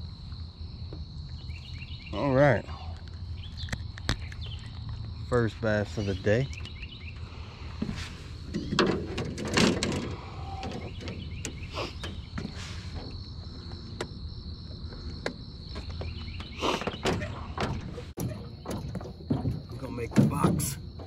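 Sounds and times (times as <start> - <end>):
knocks and clatters on aluminium boat: 7.8 - 21.0.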